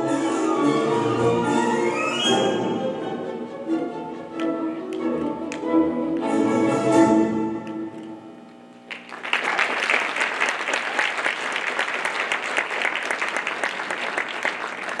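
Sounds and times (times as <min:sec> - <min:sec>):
audience applauding: 0:08.9 - 0:15.0.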